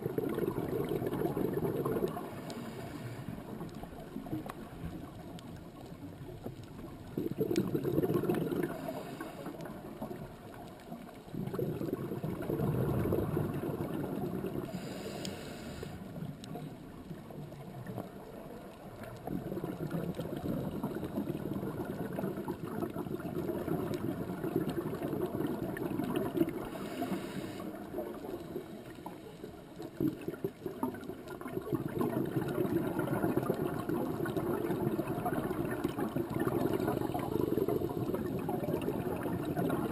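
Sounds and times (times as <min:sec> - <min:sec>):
underwater gurgling rumble: 0:00.0 - 0:39.9
brief hiss: 0:14.8 - 0:16.0.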